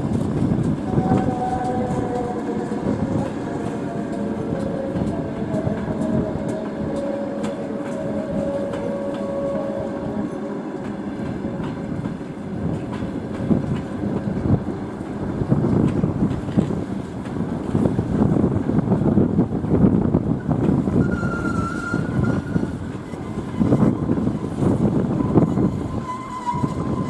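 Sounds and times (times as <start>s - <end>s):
train wheels clicking over rail joints: 10.8s - 18.8s.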